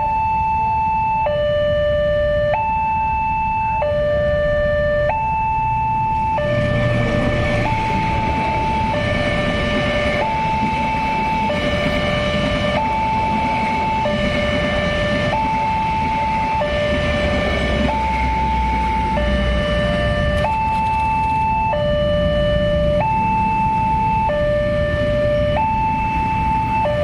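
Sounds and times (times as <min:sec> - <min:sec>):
two-tone crossing alarm: 0:00.0 - 0:27.0
train carriages passing: 0:06.1 - 0:21.7, 0:25.8 - 0:27.0.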